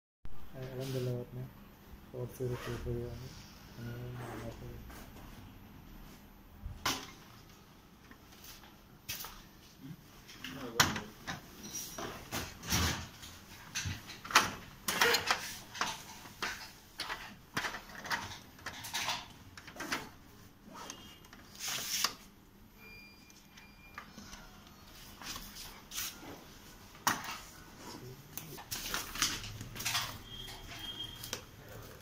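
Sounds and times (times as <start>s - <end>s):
plastic parts clicking and knocking: 13.7s - 20.1s.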